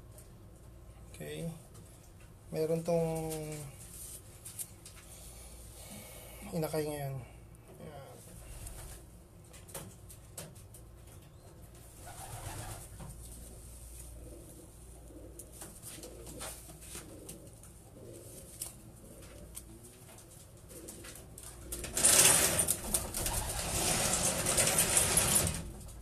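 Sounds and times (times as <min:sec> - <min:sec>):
pigeons cooing: 0:11.9 - 0:25.6
loud rustling: 0:21.8 - 0:26.0.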